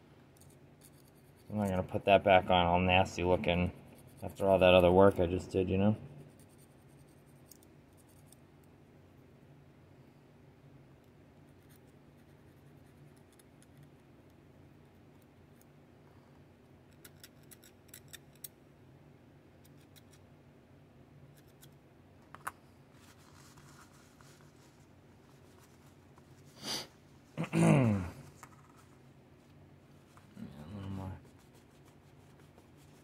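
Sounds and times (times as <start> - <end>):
low steady hum: 0.0 - 33.0
paper towel rubbing: 23.0 - 26.8.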